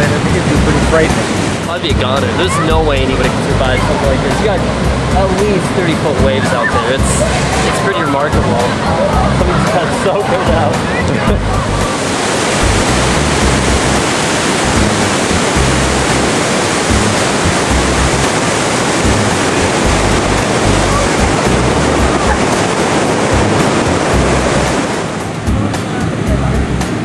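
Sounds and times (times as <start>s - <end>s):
floodwater roaring through spillway: 0.0s - 27.0s
low rumble: 2.7s - 5.6s, 12.6s - 18.3s, 19.0s - 22.6s.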